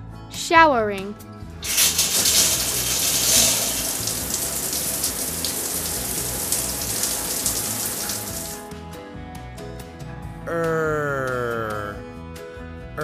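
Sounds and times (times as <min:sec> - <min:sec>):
shower spraying on tiles: 0:01.6 - 0:08.7.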